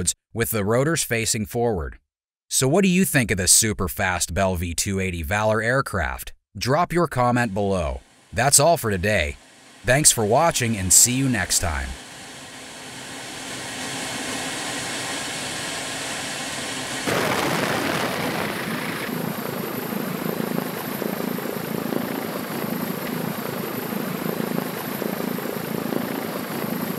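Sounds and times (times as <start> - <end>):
tiltrotor aircraft rushing noise: 9.4 - 26.9
rotor blade beat: 19.1 - 26.9.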